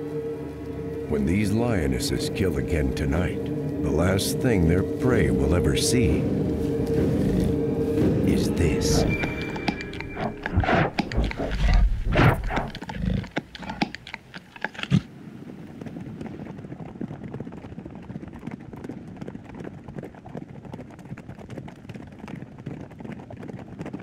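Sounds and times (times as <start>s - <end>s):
loud low sounds: 0.0s - 12.8s
hooves clattering on dry ground: 5.1s - 24.0s.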